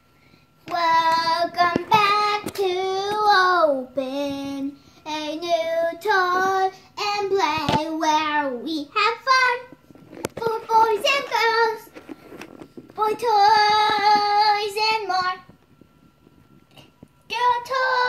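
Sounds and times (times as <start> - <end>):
child singing: 0.7 - 9.7, 13.0 - 15.5, 17.3 - 18.0.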